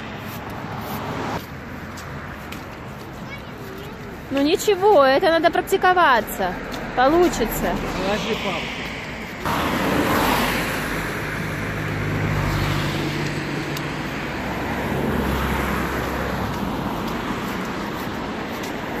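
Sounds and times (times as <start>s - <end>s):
road traffic rush: 0.0s - 19.0s.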